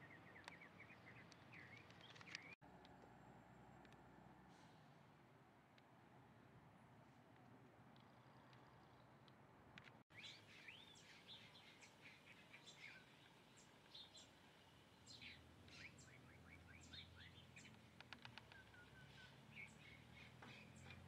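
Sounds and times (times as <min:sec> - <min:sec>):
birds chirping: 0:00.0 - 0:02.6, 0:10.1 - 0:21.0
sharp clicks: 0:17.6 - 0:18.8.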